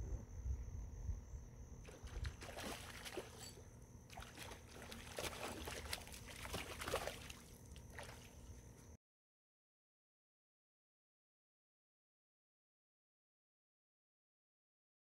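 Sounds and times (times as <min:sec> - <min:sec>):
low rumble: 0:00.0 - 0:01.6
water sloshing and splashing: 0:01.9 - 0:09.0.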